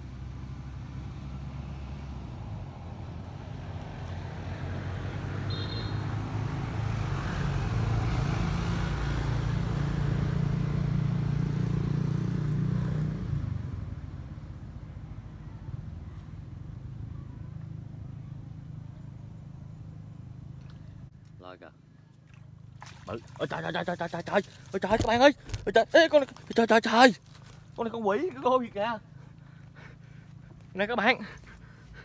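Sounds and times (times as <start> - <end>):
engine passing by: 0.0 - 21.1.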